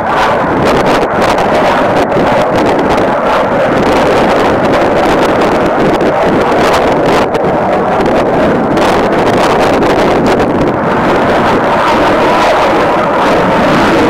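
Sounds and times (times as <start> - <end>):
distant jet engine roar: 0.0 - 14.0
wind buffeting microphone: 0.0 - 14.0.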